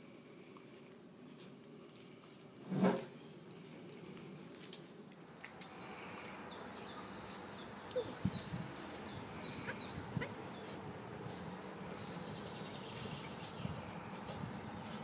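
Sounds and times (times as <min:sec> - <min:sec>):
birds chirping: 0:05.1 - 0:15.0
footsteps on paving stones: 0:12.6 - 0:15.0.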